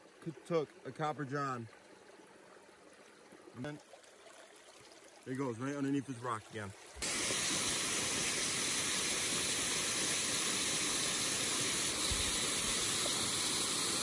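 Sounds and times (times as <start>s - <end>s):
water rushing in a rocky brook: 3.4s - 14.0s.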